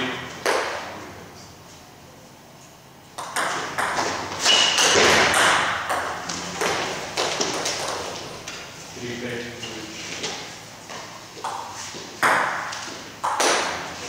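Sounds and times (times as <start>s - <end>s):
table tennis ball hits: 0.4s - 0.9s, 3.2s - 8.6s, 11.4s - 14.0s.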